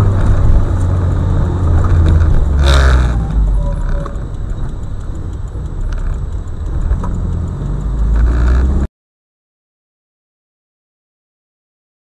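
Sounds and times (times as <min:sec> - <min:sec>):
car engine and tyres rumbling: 0:00.0 - 0:08.9
light clicks and rattles: 0:00.0 - 0:08.9.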